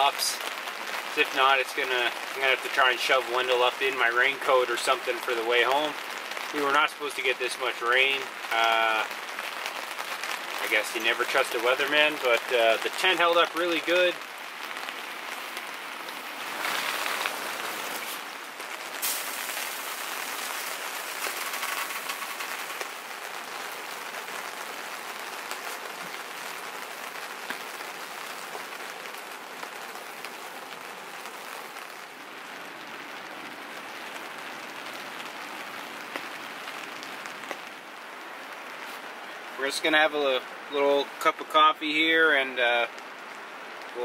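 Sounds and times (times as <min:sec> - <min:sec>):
rain on tent fabric: 0:00.0 - 0:44.0
rushes of water: 0:14.0 - 0:32.5.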